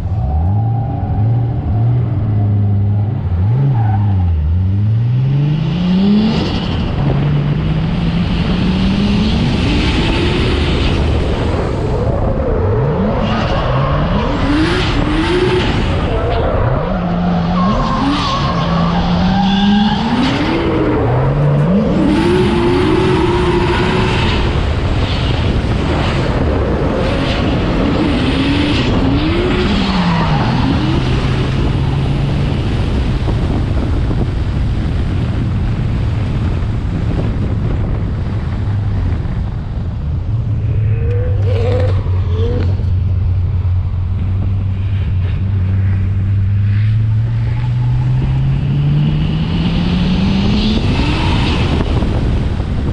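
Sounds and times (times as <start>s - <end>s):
tyres skidding and squealing: 0.0s - 7.8s, 8.6s - 33.9s, 40.3s - 52.9s
car engine revving hard: 17.6s - 25.8s.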